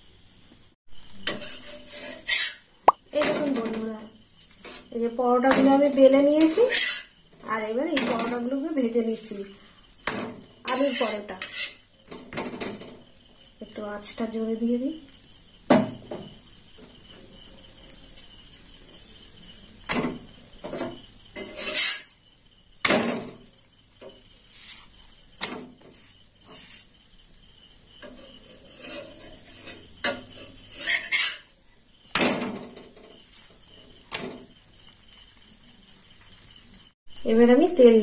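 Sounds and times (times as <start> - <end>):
metal spatula knocking on griddle: 15.7 - 16.4.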